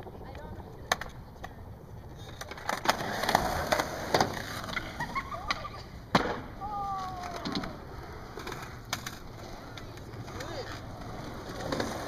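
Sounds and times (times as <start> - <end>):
skateboard wheels rolling on concrete: 0.0 - 12.0
skateboard clacking on ramp: 0.9 - 1.5.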